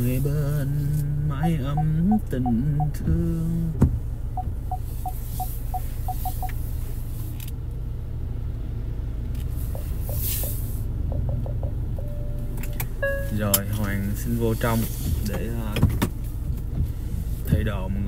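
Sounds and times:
car engine rumble: 0:00.0 - 0:18.0
brief hiss: 0:09.5 - 0:10.9.

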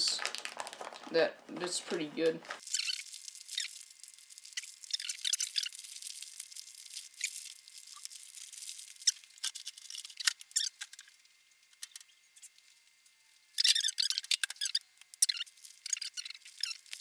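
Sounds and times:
paper wrapping crinkling: 0:00.0 - 0:17.0.

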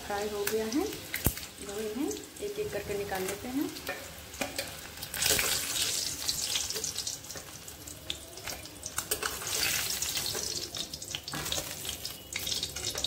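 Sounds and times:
hot oil sizzling in a pan: 0:00.0 - 0:13.0
spoon clicking and scraping pan: 0:03.2 - 0:05.8, 0:08.4 - 0:13.0.

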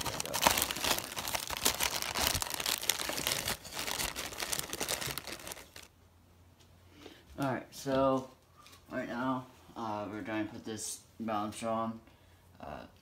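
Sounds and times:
plastic bag crinkling: 0:00.0 - 0:05.9.

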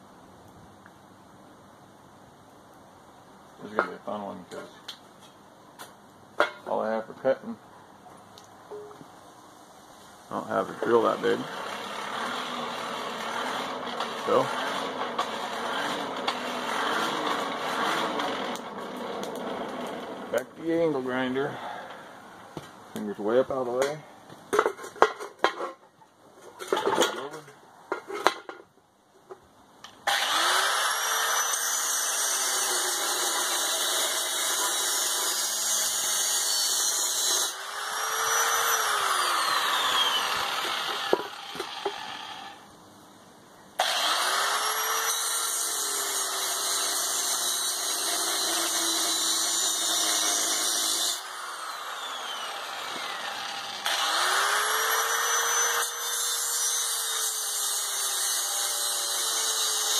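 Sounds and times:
angle grinder cutting plastic: 0:10.7 - 0:20.4, 0:30.1 - 0:42.6, 0:43.8 - 0:59.9.

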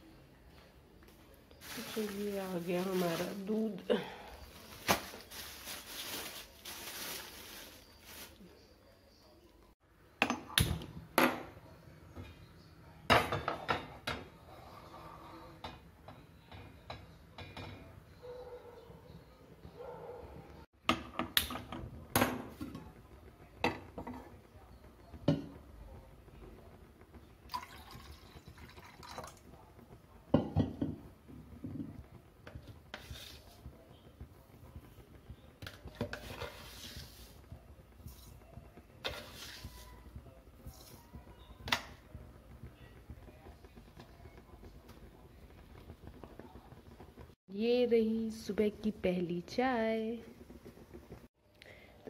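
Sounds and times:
liquid pouring: 0:27.5 - 0:29.5.

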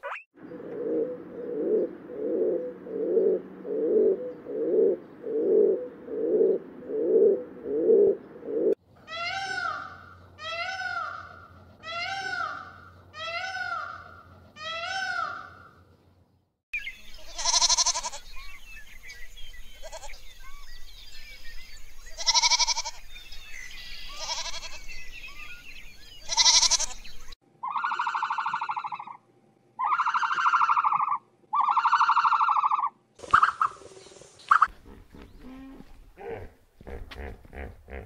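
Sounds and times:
high wavering animal cries: 0:09.1 - 0:15.6, 0:17.3 - 0:18.2, 0:22.2 - 0:23.0, 0:24.1 - 0:24.8, 0:26.3 - 0:27.0, 0:27.6 - 0:29.2, 0:29.8 - 0:33.8
long quavering animal calls: 0:17.2 - 0:18.5, 0:26.2 - 0:29.2, 0:29.8 - 0:38.0.

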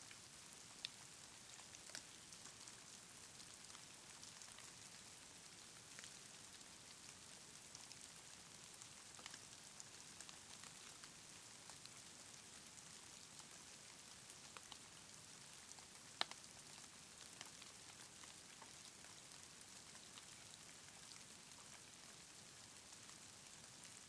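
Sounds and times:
soft hiss: 0:00.0 - 0:24.0
light ticks: 0:00.1 - 0:04.8, 0:09.1 - 0:09.4, 0:14.4 - 0:15.1, 0:15.7 - 0:19.2.

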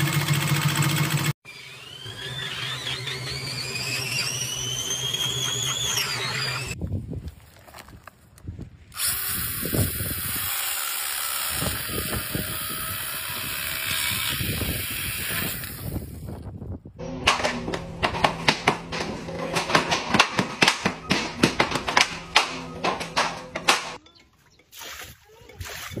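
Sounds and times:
saw cutting through log: 0:00.0 - 0:06.8, 0:09.0 - 0:16.0
sharp clicks and knocks: 0:17.2 - 0:24.0.

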